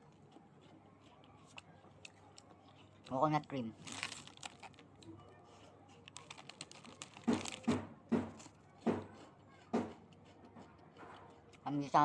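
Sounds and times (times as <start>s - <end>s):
person biting and chewing wafer: 0.0s - 3.1s, 3.8s - 7.8s, 8.4s - 11.6s
plastic wrapper crinkling: 3.7s - 5.1s, 6.0s - 7.8s.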